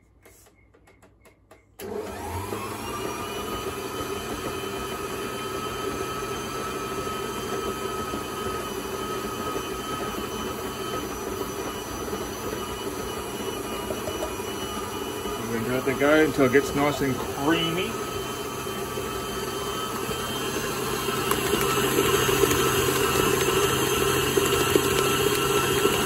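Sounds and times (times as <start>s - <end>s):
stand mixer motor running: 1.8s - 26.0s.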